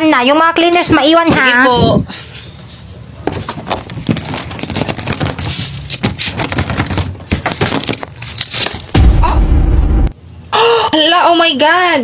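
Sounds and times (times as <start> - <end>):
low hum: 8.9 - 10.6.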